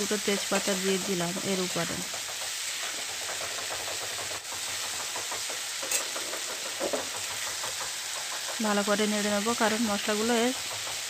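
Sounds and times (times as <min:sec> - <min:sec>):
potatoes sizzling in oil: 0:00.0 - 0:11.0
spatula scraping pan: 0:00.1 - 0:08.7.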